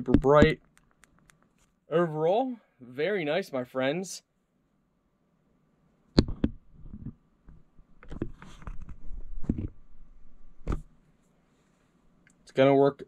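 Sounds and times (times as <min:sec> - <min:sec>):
handling rubbing and knocks: 0:00.0 - 0:00.8.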